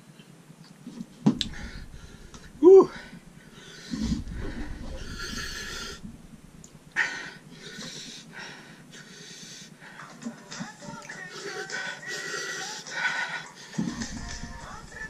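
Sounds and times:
man huffing breaths: 0:01.4 - 0:06.3, 0:06.9 - 0:10.1.

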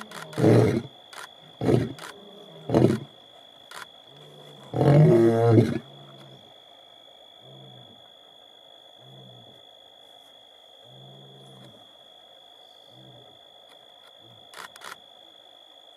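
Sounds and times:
lion roaring and grunting: 0:00.1 - 0:00.9, 0:01.6 - 0:03.1, 0:04.2 - 0:06.4.

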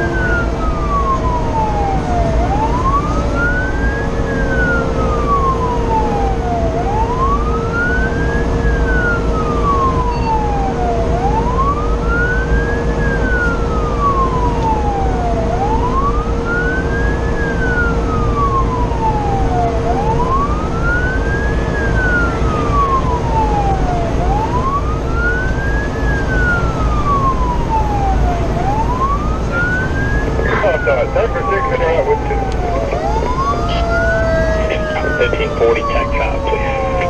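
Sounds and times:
fire engine siren wailing: 0:00.0 - 0:37.0
truck engine and road noise: 0:00.0 - 0:37.0
steady hum: 0:30.2 - 0:37.0.

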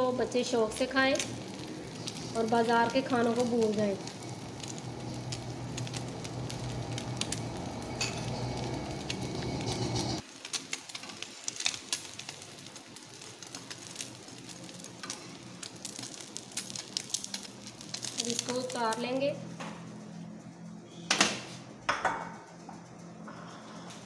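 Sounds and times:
egg sizzling in oil: 0:00.0 - 0:19.0
low hum: 0:00.1 - 0:10.2.

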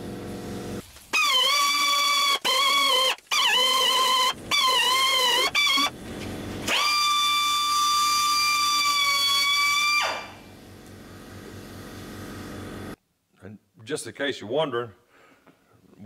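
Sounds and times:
angle grinder whining: 0:00.0 - 0:13.0.

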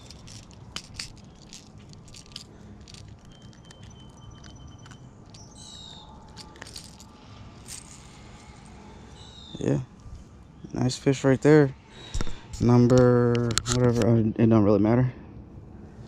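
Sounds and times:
fishing hooks clicking: 0:00.0 - 0:07.1.

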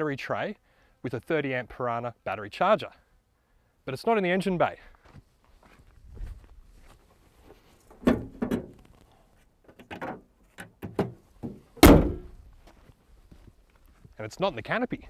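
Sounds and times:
car bonnet slamming shut: 0:08.0 - 0:08.7, 0:10.8 - 0:12.4.

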